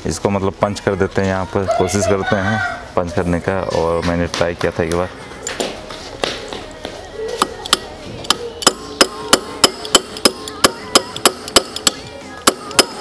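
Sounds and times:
drill bit striking metal tube: 7.4s - 13.0s.

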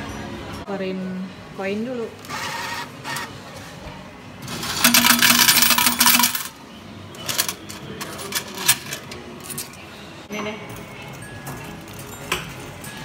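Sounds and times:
coins pouring into metal tray: 4.5s - 6.5s
coins clinking: 4.5s - 6.6s, 7.2s - 9.8s.

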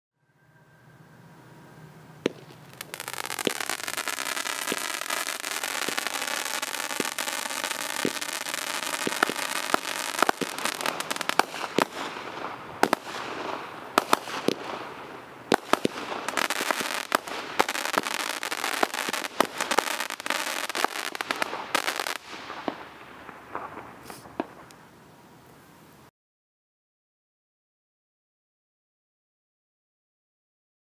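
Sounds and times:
firework hissing and crackling: 2.2s - 24.8s
firework pops and bangs: 2.2s - 24.8s.

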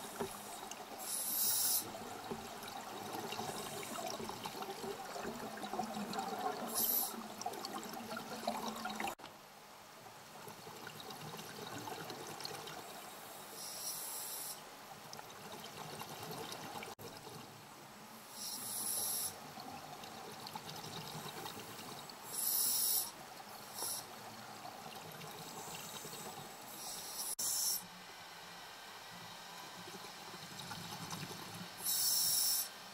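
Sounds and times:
scuba regulator breaths hissing: 0.4s - 1.9s, 13.5s - 14.6s, 18.3s - 19.4s, 22.3s - 23.1s, 23.7s - 24.1s, 31.8s - 32.7s
bubbling water: 1.8s - 9.2s, 10.5s - 13.0s.

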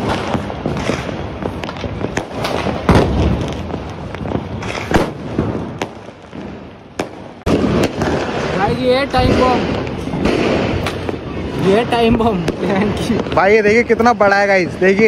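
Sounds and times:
firecracker bangs: 0.0s - 13.6s
continuous crackling: 0.0s - 15.0s.

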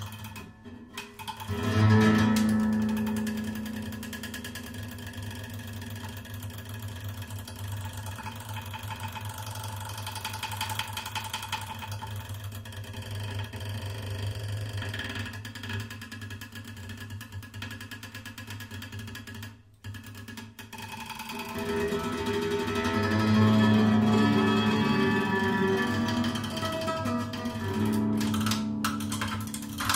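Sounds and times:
guitar strings droning: 0.0s - 5.8s, 21.3s - 29.9s.

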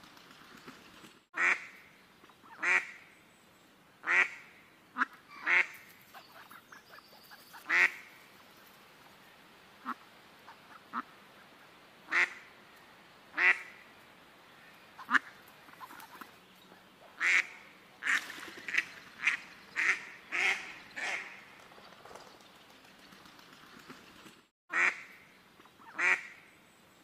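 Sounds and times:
ducks quacking: 4.0s - 8.2s, 9.8s - 12.5s, 15.0s - 16.4s.

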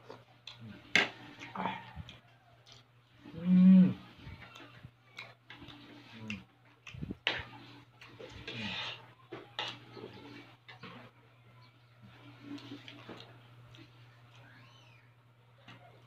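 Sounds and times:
chewing and mouth noises: 0.0s - 3.3s, 4.1s - 8.7s.

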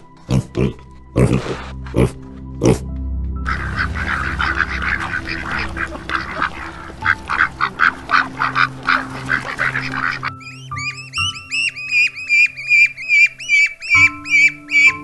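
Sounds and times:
ducklings peeping: 3.5s - 15.0s
ducks quacking: 3.5s - 15.0s.

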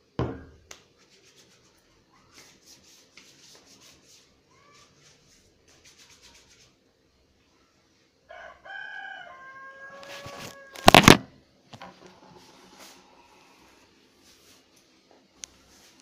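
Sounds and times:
rooster crowing: 8.3s - 11.2s.

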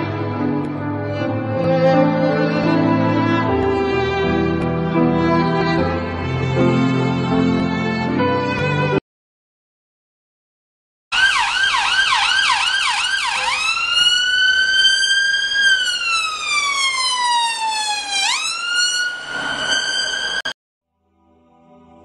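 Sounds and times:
emergency siren: 11.1s - 20.6s.

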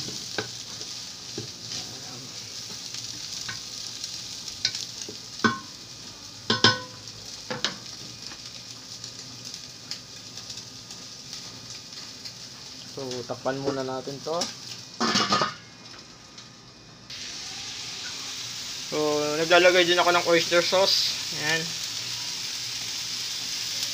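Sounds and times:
meat sizzling in a pan: 0.0s - 23.9s
utensil scraping and clanking pan: 14.4s - 15.6s.

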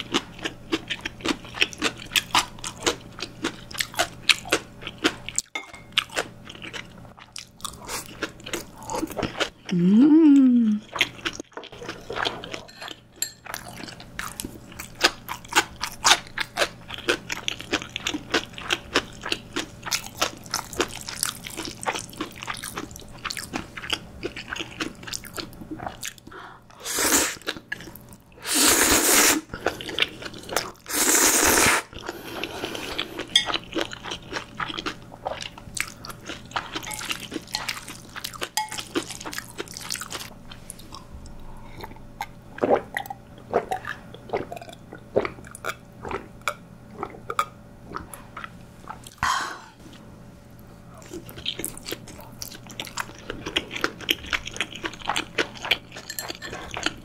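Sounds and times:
chewing noodles: 0.0s - 9.8s, 10.8s - 49.2s, 51.0s - 57.0s
slurping noodles: 26.8s - 27.5s, 28.4s - 33.3s.

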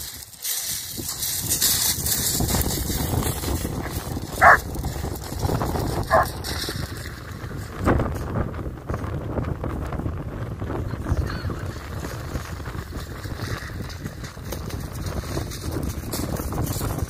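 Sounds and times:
wind rumble on microphone: 0.0s - 17.0s
dog barking: 4.4s - 4.6s.

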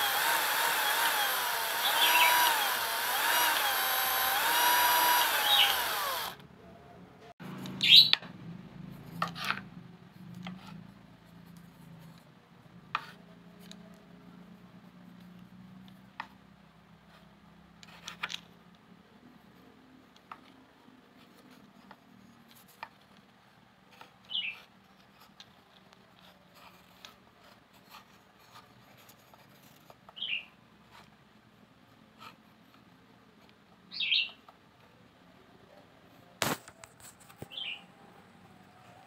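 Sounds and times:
small bird chirping: 1.8s - 2.6s, 5.3s - 6.0s, 7.8s - 8.2s, 24.3s - 24.7s, 30.2s - 30.6s, 33.9s - 34.5s, 37.4s - 37.9s.

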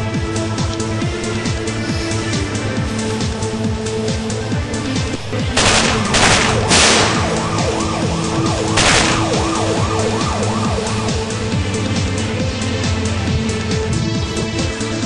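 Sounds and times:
siren-like yelping wail: 5.6s - 12.0s.

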